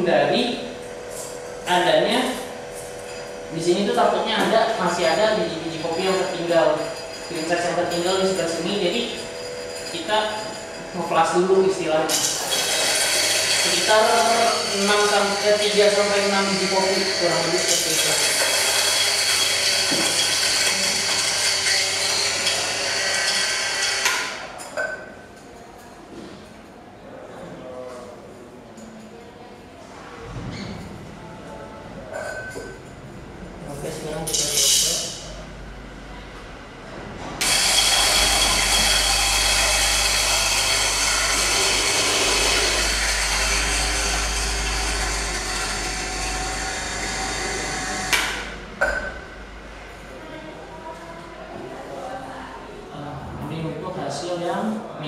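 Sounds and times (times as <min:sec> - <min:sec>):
coffee grinder whining grind: 0:12.1 - 0:24.5, 0:37.4 - 0:48.5.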